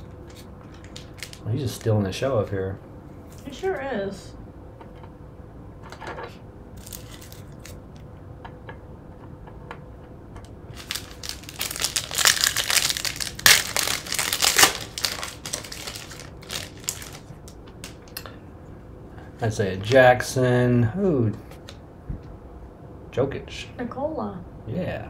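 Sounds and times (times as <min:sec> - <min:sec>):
foil wrapper crinkling and tearing: 0:00.3 - 0:02.0, 0:06.8 - 0:07.8, 0:10.7 - 0:18.2.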